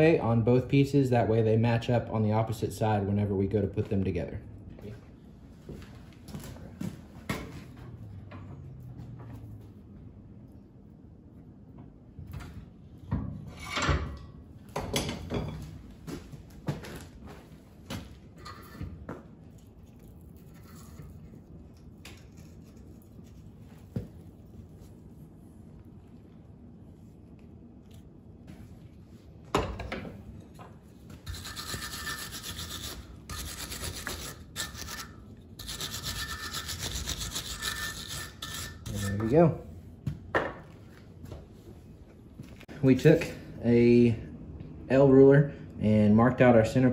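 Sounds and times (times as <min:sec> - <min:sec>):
wire brush scrubbing metal: 0:31.2 - 0:39.6.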